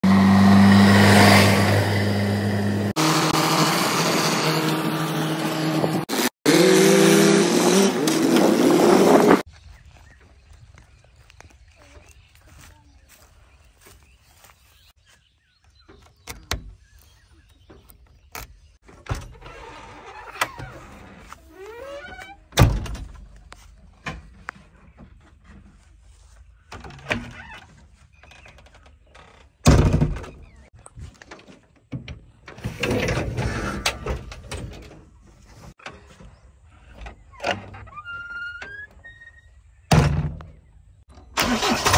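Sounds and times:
diesel engines running: 0.0 - 9.5
loud door thud: 29.6 - 30.4.

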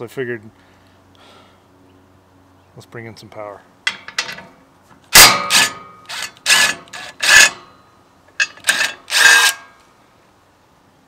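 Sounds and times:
impact driver bursts: 5.1 - 7.7, 8.4 - 9.7.

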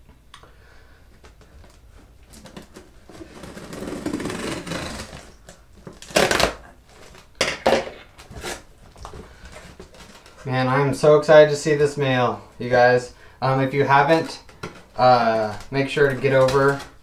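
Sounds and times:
cardboard and packing rustling: 1.2 - 11.1, 13.5 - 17.0.

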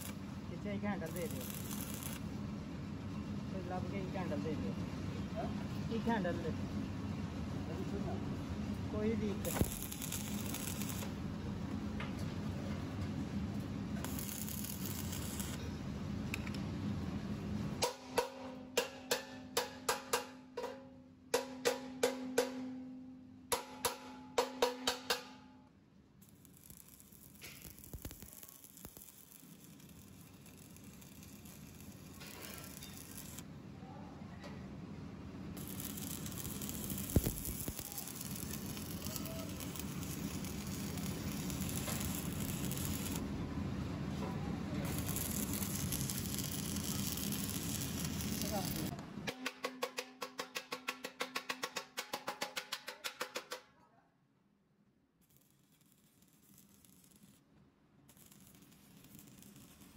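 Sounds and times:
welding arc crackling: 0.0 - 2.4, 9.0 - 11.2, 14.0 - 15.6, 26.2 - 33.4, 35.6 - 43.3, 44.8 - 49.0, 55.2 - 57.5, 58.1 - 59.9
hammer striking metal tank: 17.8 - 25.6, 49.3 - 53.6.

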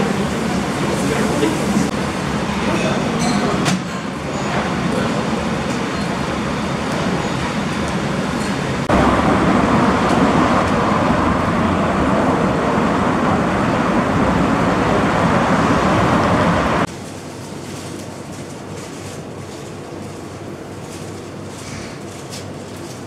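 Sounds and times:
cars driving past: 8.8 - 16.9.

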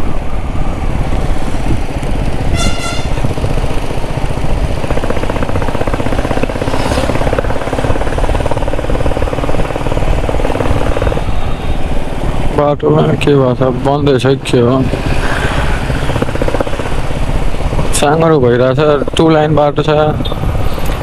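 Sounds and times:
motorcycle engine running: 1.0 - 21.0
vehicle horn toot: 2.5 - 3.3.

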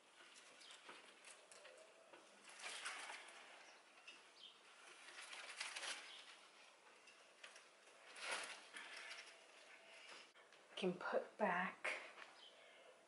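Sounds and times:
plant leaves and pot rustling: 0.0 - 10.4.

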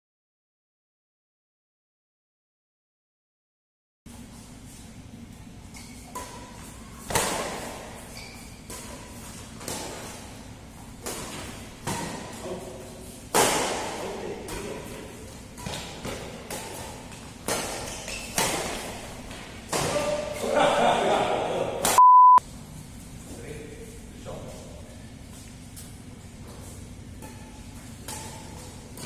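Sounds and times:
shoes squeaking on court: 5.6 - 13.0, 15.3 - 19.5
rackets striking shuttlecock: 13.3 - 14.8, 15.5 - 19.0, 27.1 - 29.0.

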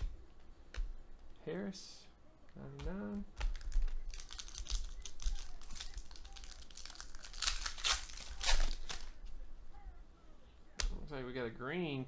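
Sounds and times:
foil wrapper crinkling and tearing: 3.5 - 9.2.

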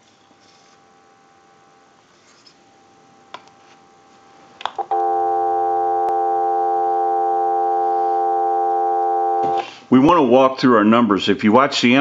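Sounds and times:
telephone dial tone: 4.8 - 9.6.

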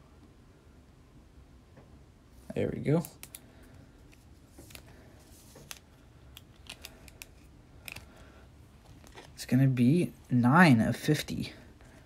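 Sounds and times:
plastic sleeve clicking and scraping: 4.1 - 8.2, 8.8 - 9.4.

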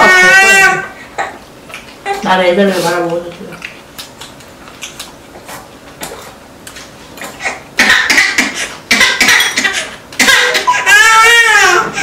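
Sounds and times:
infant crying: 0.0 - 1.4, 8.2 - 12.0.

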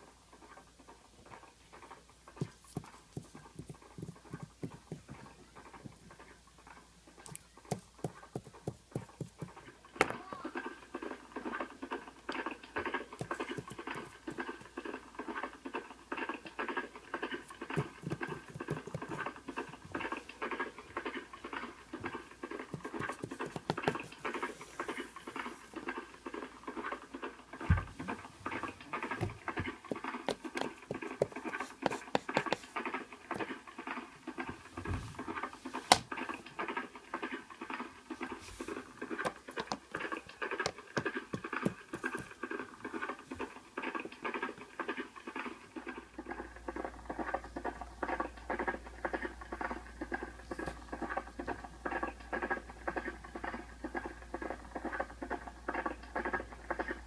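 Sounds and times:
pencil scratching on paper: 22.8 - 25.1, 29.9 - 32.8.

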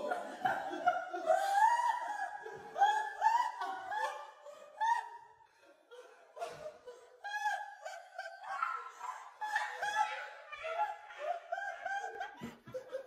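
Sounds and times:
woman laughing: 5.9 - 13.0.

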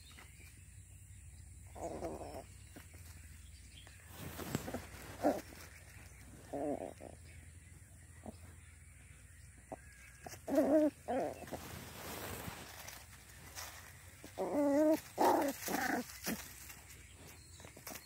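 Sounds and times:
dog digging in dirt and leaves: 0.0 - 18.0
puppy vocal sounds: 1.7 - 2.6, 4.4 - 7.3, 10.2 - 12.7, 14.2 - 16.8
scratching: 4.0 - 7.2, 9.7 - 18.0.

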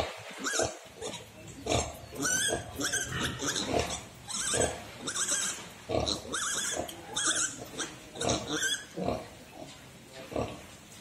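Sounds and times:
piglets squealing: 0.4 - 9.0.

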